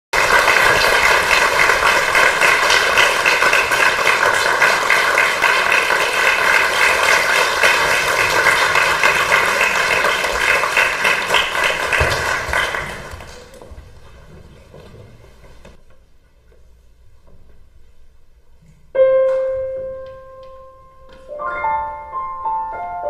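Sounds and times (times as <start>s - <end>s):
audience applauding: 0.1s - 13.6s.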